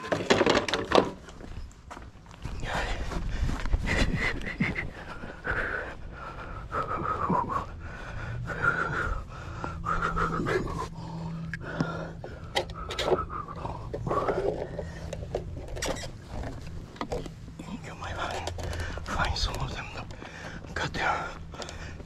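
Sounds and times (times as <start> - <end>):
plastic railing clacking: 0.0 - 1.4
steady low hum: 1.3 - 22.0
heavy breathing: 2.4 - 22.0.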